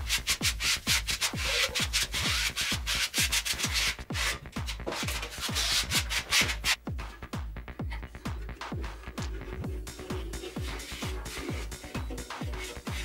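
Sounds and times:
plastic spreader scraping paper: 0.0s - 6.8s
electronic music with kick drum: 0.0s - 13.0s.

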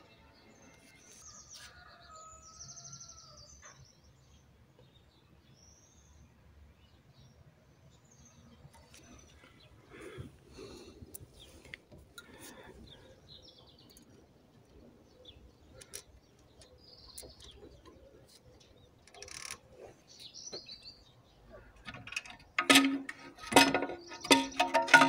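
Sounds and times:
metal pieces clattering: 21.9s - 25.0s.

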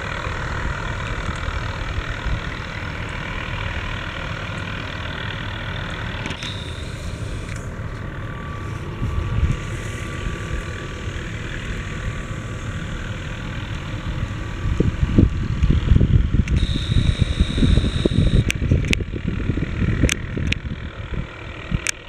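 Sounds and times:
distant helicopter hovering: 0.0s - 22.0s
wind buffeting microphone: 6.9s - 22.0s.

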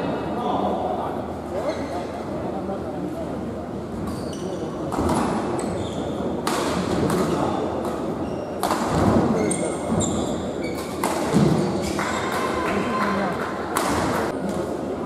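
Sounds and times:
shoes squeaking on court: 4.0s - 4.8s, 5.5s - 6.2s, 9.3s - 12.1s.

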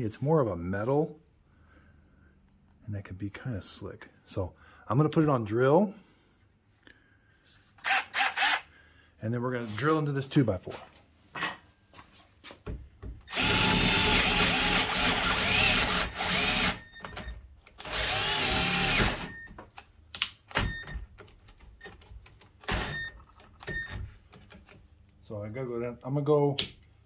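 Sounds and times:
cordless drill boring into wood: 7.8s - 8.7s, 13.3s - 16.8s, 17.8s - 19.3s.

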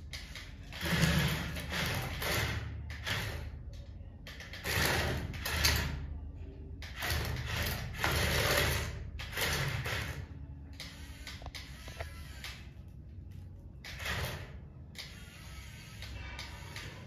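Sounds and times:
toy electric motor whirring: 0.0s - 3.6s, 6.8s - 12.8s, 13.8s - 17.0s.

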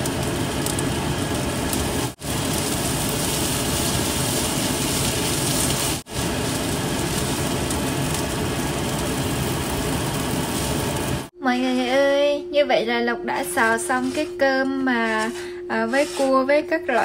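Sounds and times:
rice sizzling in pan: 0.0s - 11.3s
spatula stirring: 13.6s - 17.0s.

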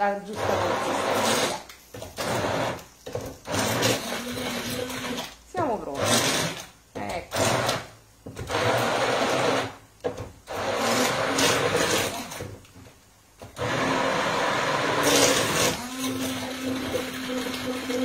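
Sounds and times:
electric blender whining: 0.3s - 2.8s, 3.4s - 5.4s, 6.0s - 6.7s, 7.4s - 9.8s, 10.5s - 12.5s, 13.6s - 18.0s.

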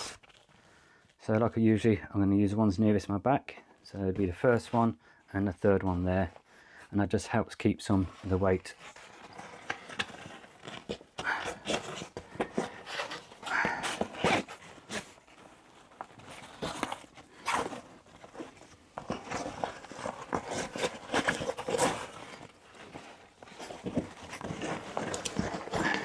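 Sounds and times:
scrapes and light knocks: 7.9s - 26.0s
fabric rustling: 8.2s - 26.0s.

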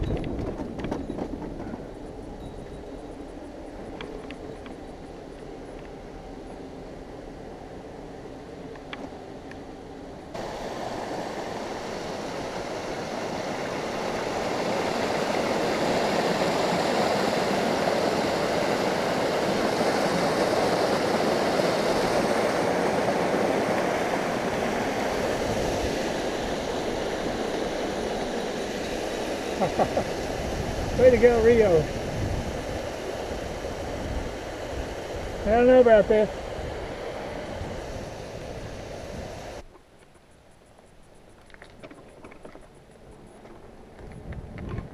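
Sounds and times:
creek water rushing over rocks: 10.4s - 30.4s.

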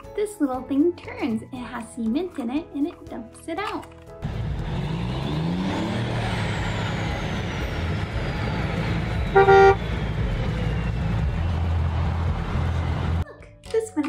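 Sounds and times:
truck engine rumbling: 4.2s - 13.2s
truck horn honk: 9.2s - 10.0s.

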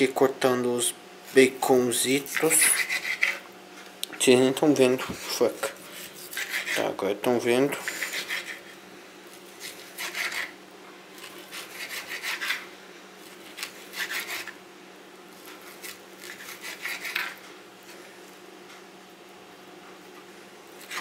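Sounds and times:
knife cutting bacon on wooden board: 2.3s - 3.4s, 6.0s - 6.8s, 7.9s - 8.8s, 9.4s - 10.6s, 11.2s - 12.6s, 13.2s - 14.6s, 15.4s - 17.4s, 20.8s - 21.0s.

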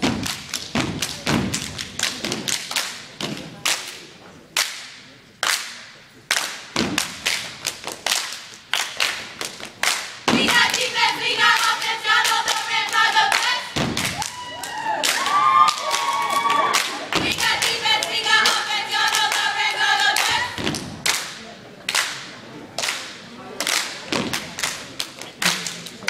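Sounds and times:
rhythmic foot stomps: 0.0s - 3.6s, 6.4s - 10.8s, 13.4s - 14.3s, 17.2s - 17.9s, 20.2s - 21.2s, 24.1s - 25.7s
hand claps: 0.2s - 4.0s, 4.6s - 10.8s, 20.2s - 26.0s
voices chanting in unison: 10.4s - 13.8s, 16.9s - 20.6s.

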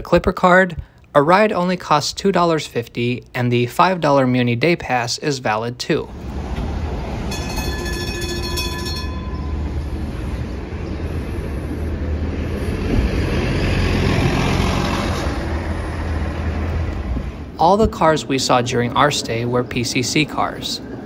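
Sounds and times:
low rumble of street traffic: 0.0s - 21.0s
bus engine and tyre noise: 5.8s - 21.0s.

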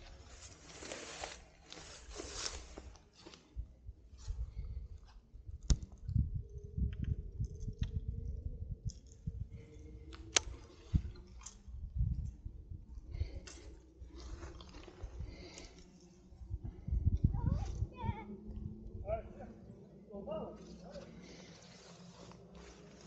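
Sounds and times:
reel clicks: 8.8s - 11.7s.

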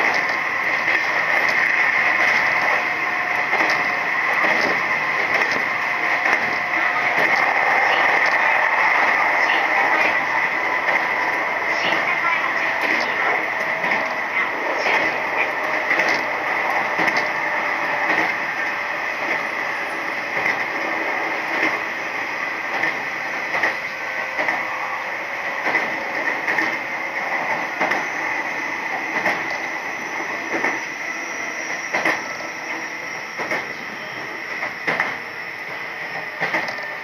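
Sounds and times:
wheels clicking over rail joints: 0.0s - 10.2s
high hum: 0.0s - 34.8s
electric train running: 0.0s - 37.0s.

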